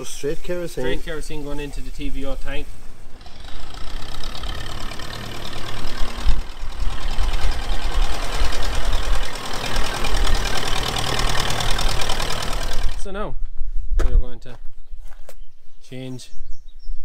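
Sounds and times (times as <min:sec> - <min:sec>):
tractor engine running: 0:02.6 - 0:13.2.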